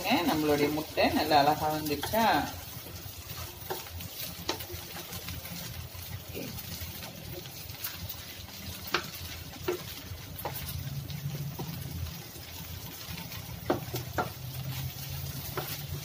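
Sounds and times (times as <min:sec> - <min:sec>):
faint frying sizzle: 0:00.0 - 0:16.0
wooden spatula knocking on pan: 0:08.8 - 0:10.8, 0:13.5 - 0:14.8.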